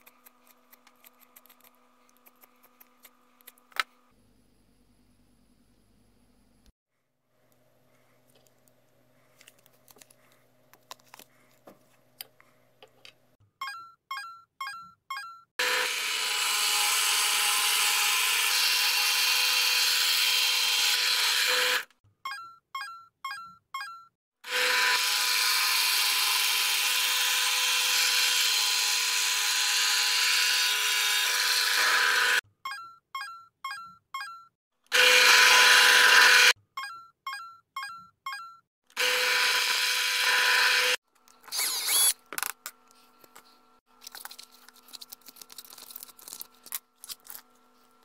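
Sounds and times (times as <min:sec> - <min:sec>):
electric drill boring into wood: 0:15.6 - 0:21.9, 0:24.5 - 0:32.4, 0:34.9 - 0:36.6, 0:39.0 - 0:42.2.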